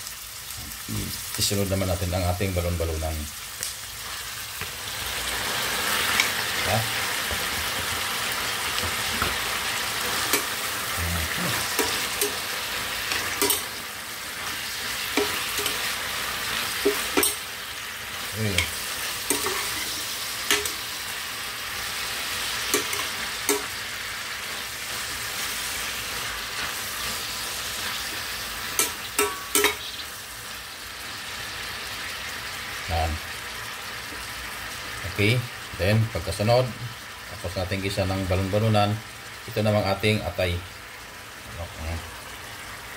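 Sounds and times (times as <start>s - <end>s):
food sizzling in a pan: 0.0s - 42.9s
metal spoon clinking and scraping: 11.6s - 12.4s, 13.1s - 13.8s, 15.1s - 15.9s, 16.8s - 17.4s, 18.6s - 20.8s, 22.7s - 23.7s.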